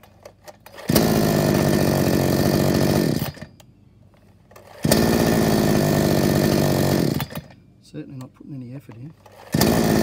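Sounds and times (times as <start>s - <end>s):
chainsaw running: 0.7s - 3.5s, 4.6s - 7.6s, 9.2s - 10.0s.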